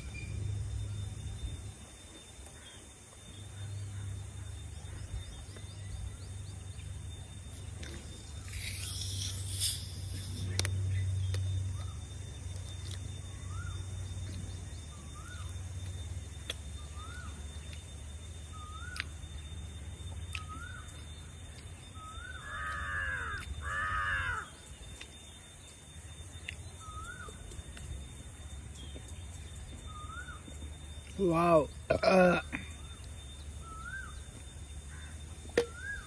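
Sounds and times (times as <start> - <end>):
small bird chirping: 0.0 - 32.0, 32.6 - 36.0
crow cawing: 22.3 - 24.5.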